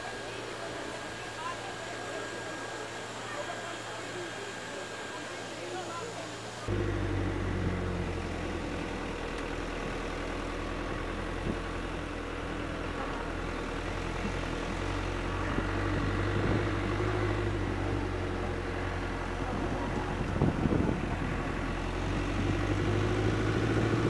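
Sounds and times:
vehicle engine and road noise: 6.2s - 24.0s.

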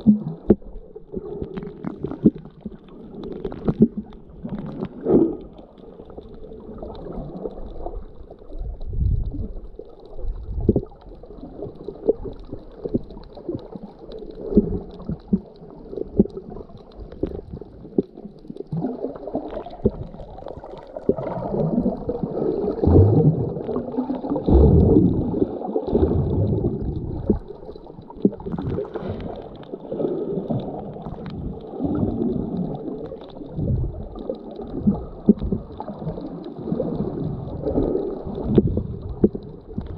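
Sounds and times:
underwater churning and gurgling: 0.0s - 39.9s
low underwater thumps: 24.4s - 27.5s, 38.4s - 39.9s.

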